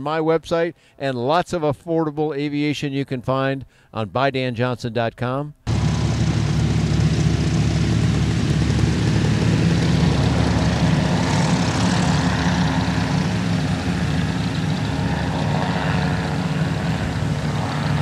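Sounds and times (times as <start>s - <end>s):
ultralight plane engine droning: 5.7s - 18.0s.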